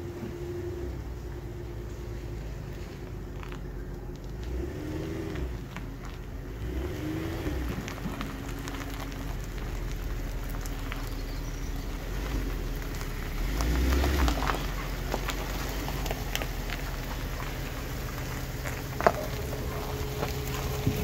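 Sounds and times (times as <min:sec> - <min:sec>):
car engine humming: 0:00.0 - 0:21.0.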